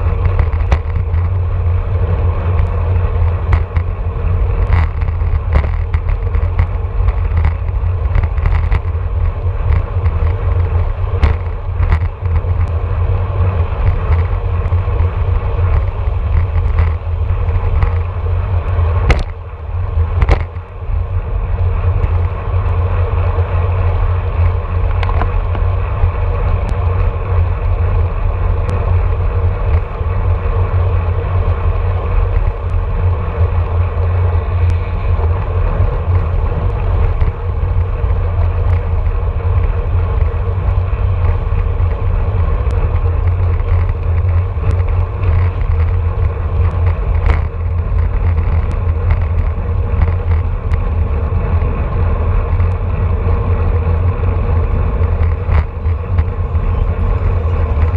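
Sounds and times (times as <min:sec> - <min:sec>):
tyre and road noise: 0:00.0 - 0:57.9
wind buffeting microphone: 0:00.0 - 0:57.9
small clicks: 0:04.6 - 0:12.8, 0:42.6 - 0:50.9.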